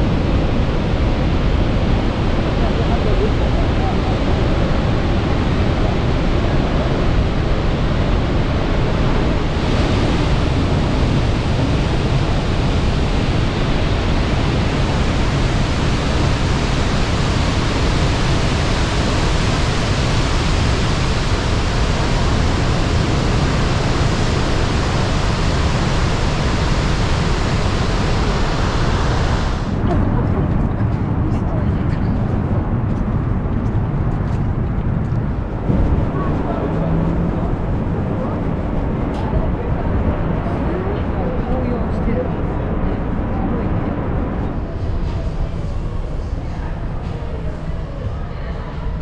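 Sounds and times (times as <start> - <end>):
waterfall roaring: 0.0 - 31.2.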